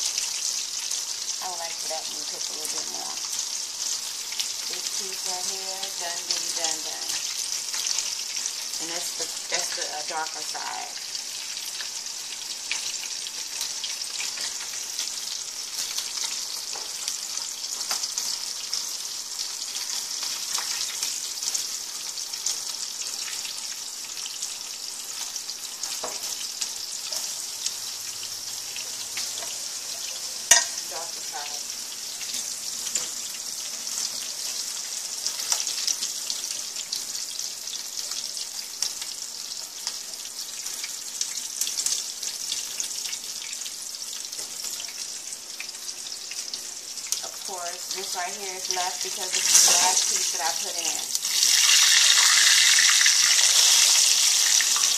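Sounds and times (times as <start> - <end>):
meat sizzling in hot oil: 0.0 - 54.9.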